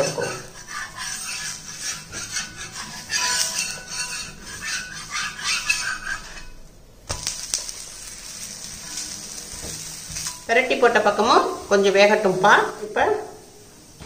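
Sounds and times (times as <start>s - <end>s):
pancake sizzling in fat: 0.0s - 14.0s
spatula scraping pan: 0.0s - 14.0s
pancake clacking on pan: 1.2s - 7.9s.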